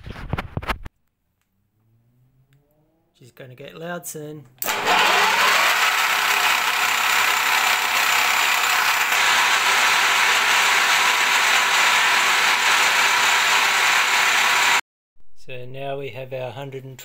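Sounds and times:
milling machine cutting steel: 4.6s - 14.8s.

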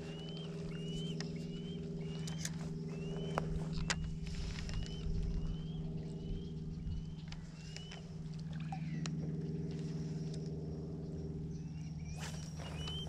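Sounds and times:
motorboat engine droning: 0.0s - 13.0s
rising bird chirps: 11.8s - 13.0s.

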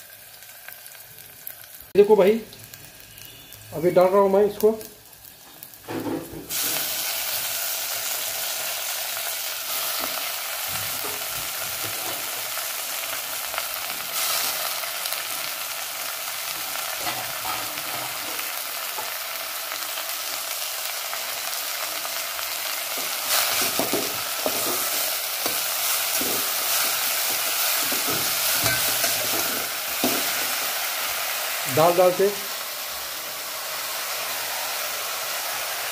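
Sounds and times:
vegetables sizzling in hot oil: 0.0s - 35.9s
steel spoon scraping a pot: 24.4s - 30.3s.

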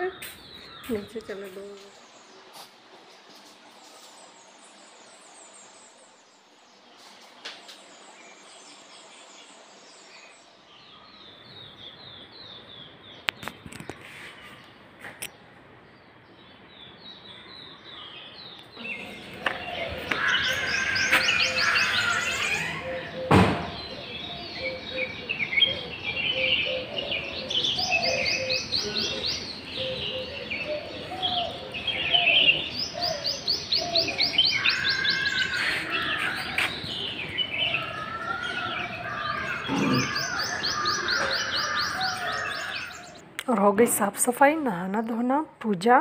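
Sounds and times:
birds chirping and singing: 15.8s - 44.1s
sharp knock: 23.3s - 23.8s.

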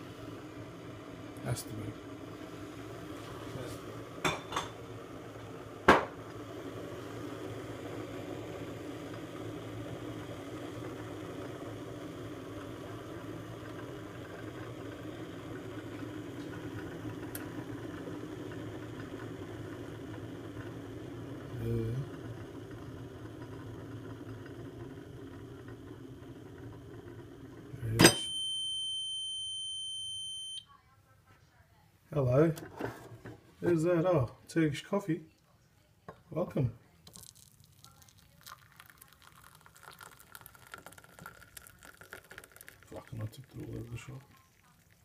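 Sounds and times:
coffee machine humming: 0.0s - 30.5s, 32.1s - 35.2s, 36.1s - 45.0s
cup set down on stone counter: 5.9s - 6.2s.

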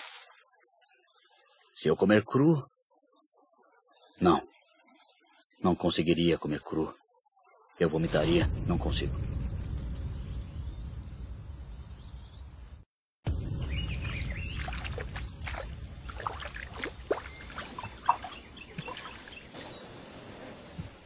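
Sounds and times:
high insect drone: 0.0s - 21.0s
low rumbling: 8.0s - 18.6s.

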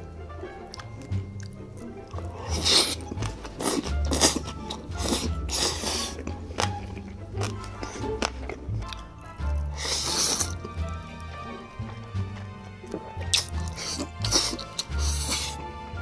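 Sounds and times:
background music with bass: 0.0s - 16.0s
person slurping noodles: 1.4s - 9.0s, 9.6s - 10.8s, 12.8s - 15.7s.

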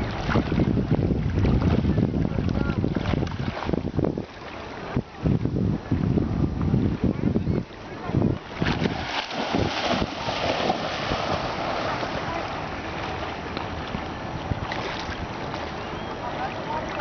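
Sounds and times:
wind on microphone: 0.0s - 17.0s
dog splashing in water: 8.6s - 12.4s.

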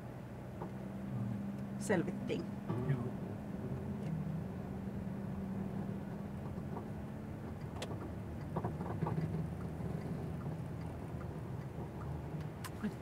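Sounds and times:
car engine droning: 0.0s - 13.0s
road noise: 0.0s - 13.0s.

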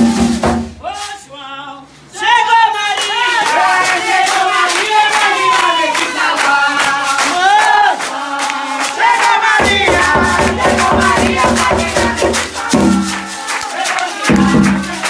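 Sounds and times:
group of people chanting: 2.2s - 15.0s
hands clapping in rhythm: 2.9s - 15.0s
low pulsing beat: 9.6s - 13.3s.

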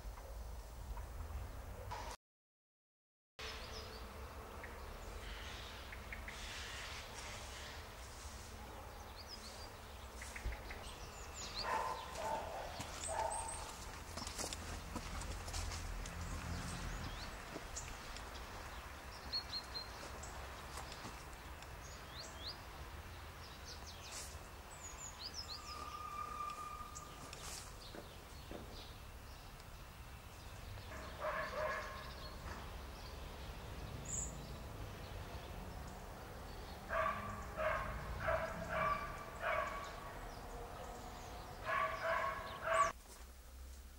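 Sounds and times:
steady outdoor rumble: 3.4s - 43.9s
small birds chirping: 3.6s - 43.0s
dog barking: 11.6s - 13.8s, 30.9s - 32.1s, 36.9s - 40.2s, 41.6s - 43.0s.

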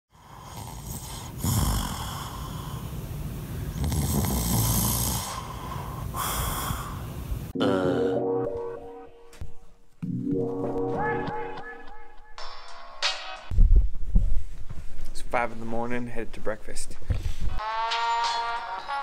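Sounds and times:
person snoring: 0.1s - 3.0s, 3.7s - 8.2s
different pitched sound: 7.6s - 13.5s.

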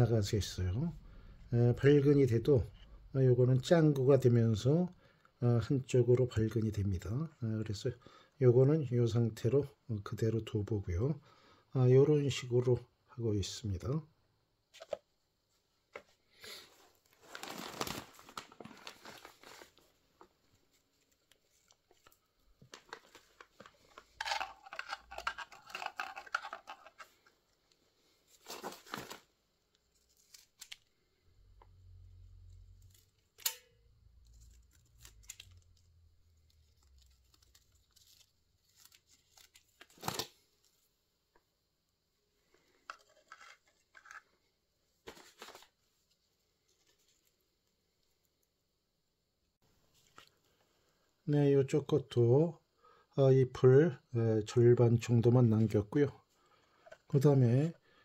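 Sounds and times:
plastic crinkling and rustling: 16.8s - 31.0s, 34.3s - 40.9s.

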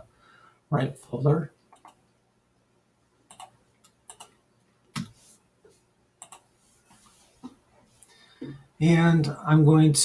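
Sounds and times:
mouse and keyboard clicks: 3.3s - 4.3s, 6.2s - 6.5s.

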